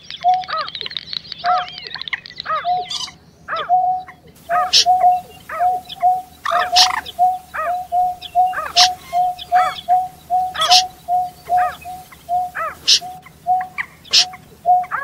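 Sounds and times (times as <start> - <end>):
rising and falling bird notes: 0.0 - 15.0
short hooting bird calls: 0.3 - 15.0
sharp high bird bursts: 4.4 - 15.0.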